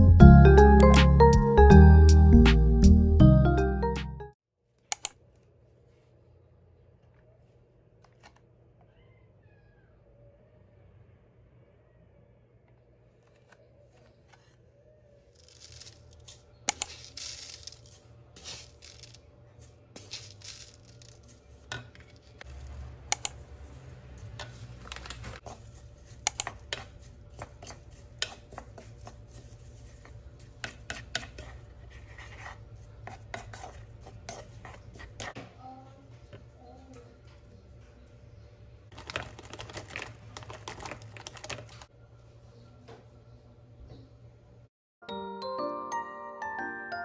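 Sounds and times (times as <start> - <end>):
wooden spoon scraping and tapping: 23.6 - 35.5.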